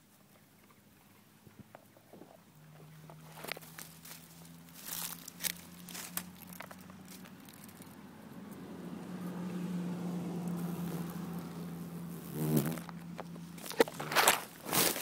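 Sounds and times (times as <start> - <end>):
wasp wings buzzing: 10.1 - 15.0.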